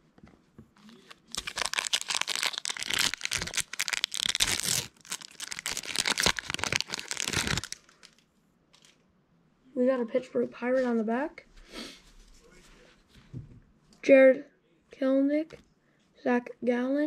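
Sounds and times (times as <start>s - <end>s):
wrapper crinkling and tearing: 0.9s - 8.2s.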